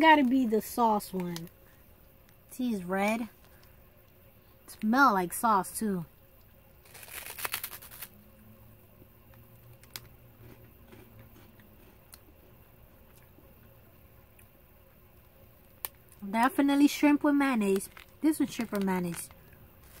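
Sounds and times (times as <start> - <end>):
crunching bite into snack: 6.8 - 8.2
chewing crunches: 9.7 - 13.3.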